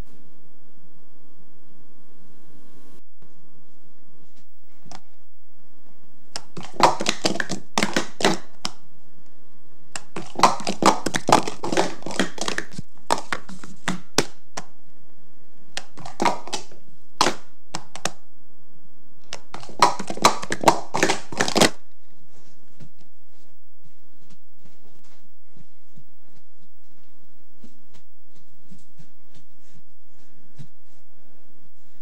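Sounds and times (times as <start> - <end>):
plastic cups clacking: 6.4 - 8.8, 10.0 - 14.7, 15.7 - 18.2, 19.2 - 21.9.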